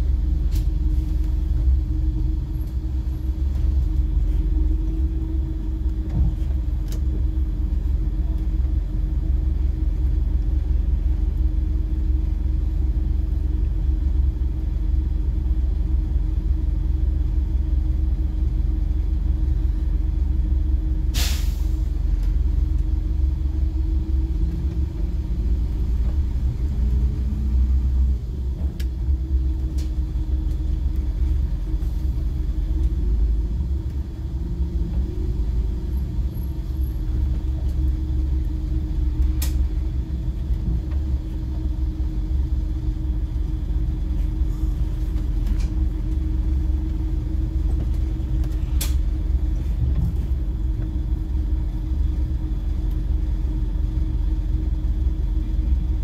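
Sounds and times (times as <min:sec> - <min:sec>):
bus engine idling: 0:00.0 - 0:56.0
air brake hiss: 0:21.1 - 0:21.9.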